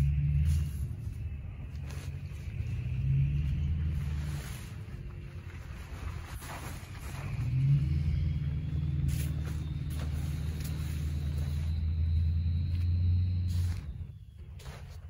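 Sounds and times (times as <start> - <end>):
low motor rumble: 0.0 - 15.0.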